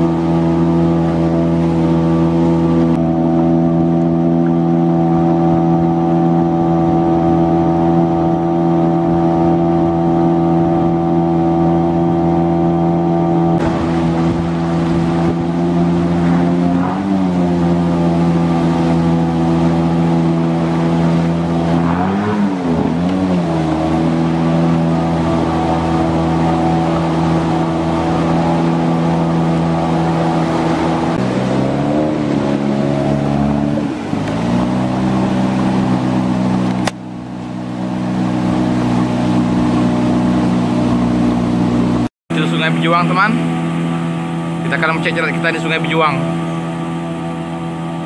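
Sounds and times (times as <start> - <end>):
engine running: 0.0 - 48.0
sharp click: 36.6 - 37.0.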